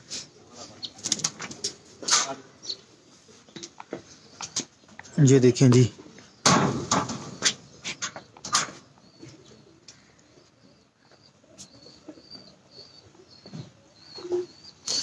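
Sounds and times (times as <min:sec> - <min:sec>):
pigeons cooing: 0:00.0 - 0:04.9, 0:05.9 - 0:15.0
loud rustling knocks: 0:06.4 - 0:07.5.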